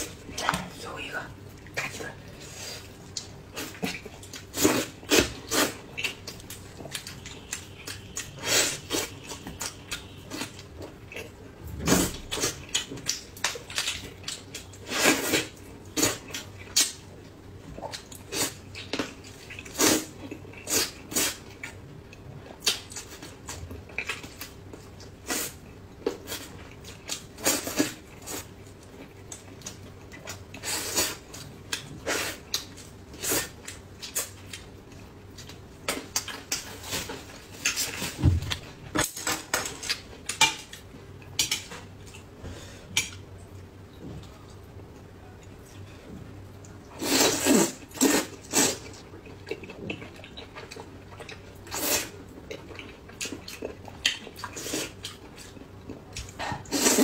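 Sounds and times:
wet chewing and smacking: 0:33.6 - 0:42.4, 0:48.8 - 0:56.8.

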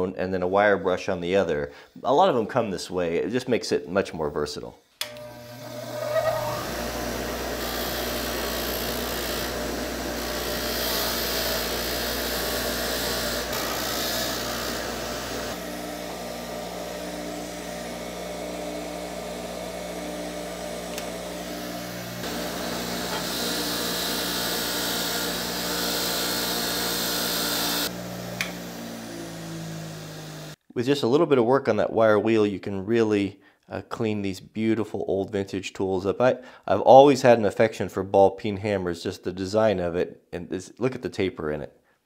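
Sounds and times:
grinder motor hum: 0:05.0 - 0:30.6
wire wheel brushing steel: 0:05.3 - 0:16.6.

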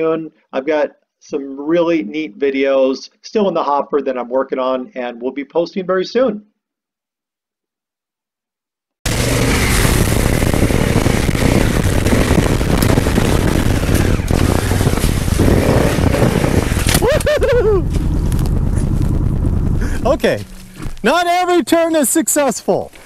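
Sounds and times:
motorcycle engine revving: 0:09.1 - 0:21.1.

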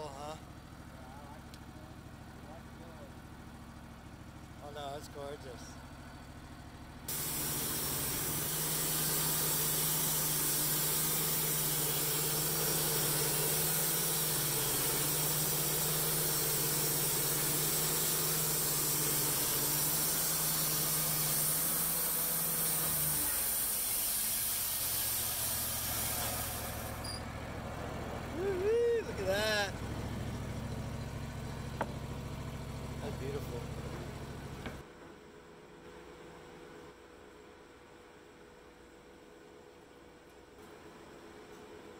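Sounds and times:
band sawmill cutting log: 0:07.1 - 0:34.8.

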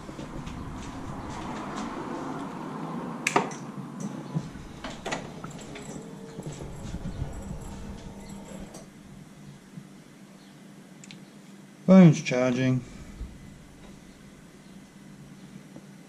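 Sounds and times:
light taps and shuffling: 0:00.0 - 0:02.4, 0:04.0 - 0:08.9.

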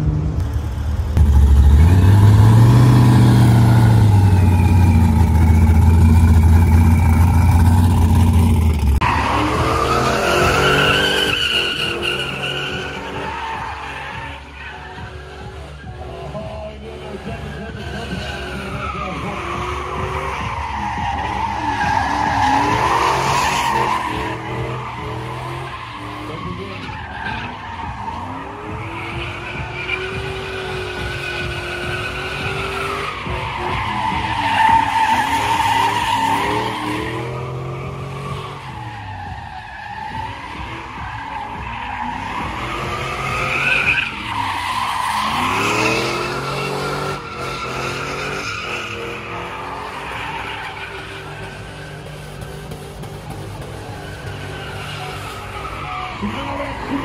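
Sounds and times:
truck engine revving: 0:00.0 - 0:57.0
tyres squealing: 0:02.6 - 0:07.7, 0:17.2 - 0:51.7, 0:53.8 - 0:57.0.

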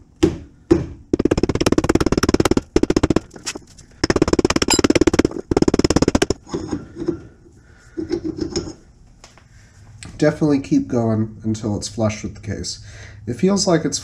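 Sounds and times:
rubber mallet knocking on metal: 0:00.2 - 0:03.4, 0:04.0 - 0:06.4.

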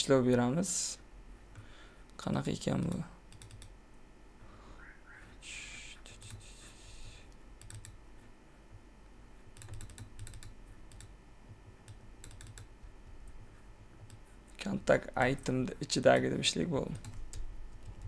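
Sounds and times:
low steady hum: 0:00.0 - 0:18.0
computer keyboard clicking: 0:02.8 - 0:03.7, 0:07.6 - 0:08.0, 0:09.6 - 0:11.1, 0:11.8 - 0:13.4, 0:16.9 - 0:18.0
soft hiss: 0:04.3 - 0:07.6.

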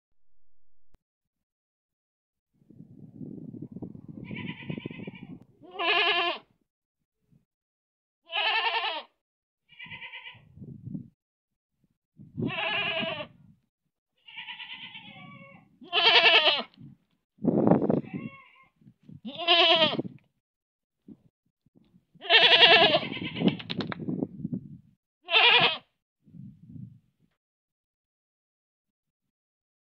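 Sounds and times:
goat bleating: 0:04.2 - 0:06.5, 0:08.3 - 0:09.1, 0:09.7 - 0:10.5, 0:12.4 - 0:13.4, 0:14.2 - 0:16.8, 0:18.0 - 0:20.1, 0:22.2 - 0:23.6, 0:25.3 - 0:25.9.

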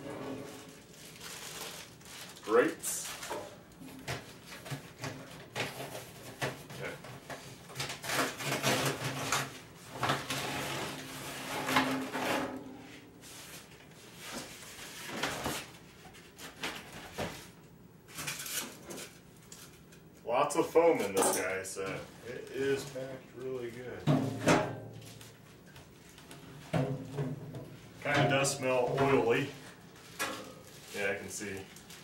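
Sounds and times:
packing scraping in metal barrel: 0:00.0 - 0:00.8, 0:10.0 - 0:13.6.

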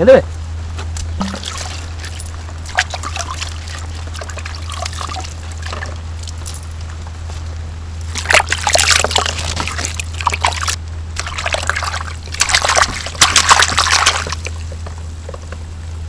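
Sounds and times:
steady low hum: 0:00.0 - 0:16.0
water splashing in a bucket: 0:01.2 - 0:06.6, 0:08.1 - 0:14.8.

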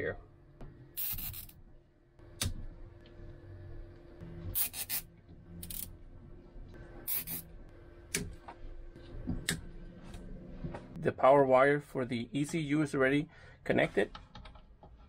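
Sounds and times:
wires rubbing and scraping: 0:01.0 - 0:01.6.

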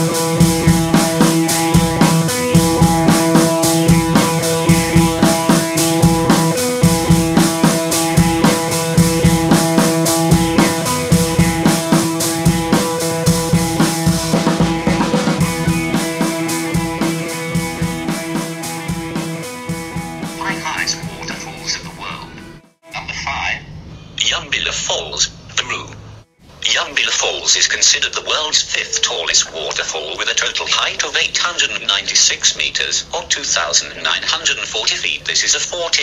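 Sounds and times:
background music with drum beat: 0:00.0 - 0:22.8.

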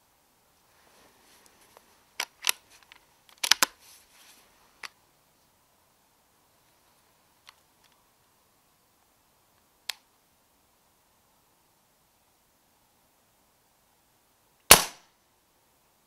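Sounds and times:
faint clicks: 0:07.4 - 0:08.0
air rifle shots cracking: 0:14.7 - 0:15.0.

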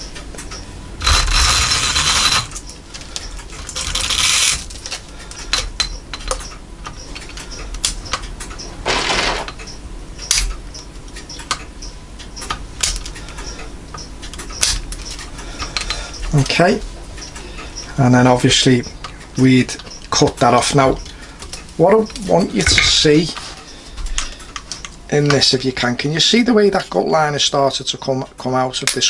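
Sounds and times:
sharp metal clicks: 0:00.0 - 0:16.6
metal scrape: 0:01.0 - 0:02.6
rapid metallic rattling: 0:01.0 - 0:02.6.

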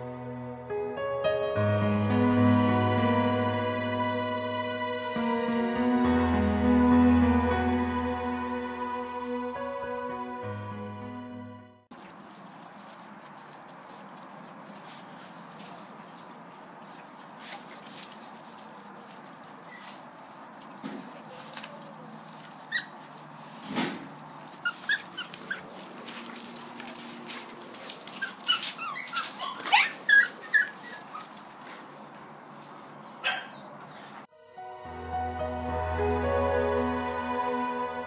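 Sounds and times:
puppies yelping and squealing: 0:19.0 - 0:20.0, 0:22.0 - 0:23.3, 0:24.3 - 0:25.9, 0:27.8 - 0:33.7.

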